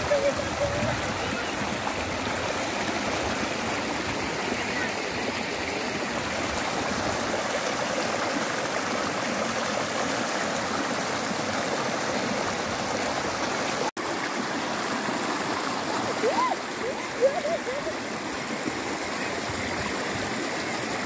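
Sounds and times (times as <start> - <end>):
stream rushing over rocks: 0.0 - 21.0.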